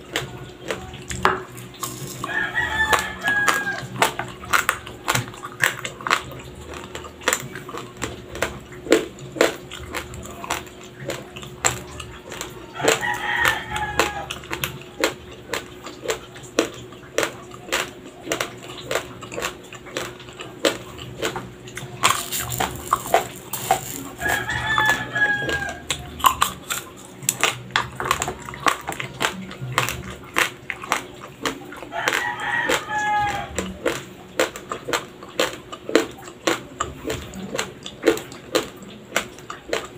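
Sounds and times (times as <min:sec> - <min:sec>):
raw rice crunching when chewed: 0:00.0 - 0:39.9.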